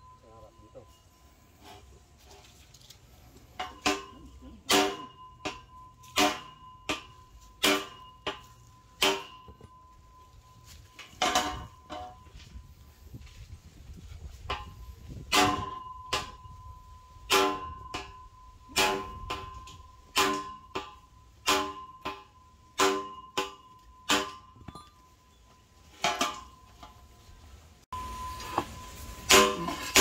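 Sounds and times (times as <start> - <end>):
metal strikes on steel pipe: 3.5 - 12.5, 14.4 - 27.2, 27.9 - 30.0.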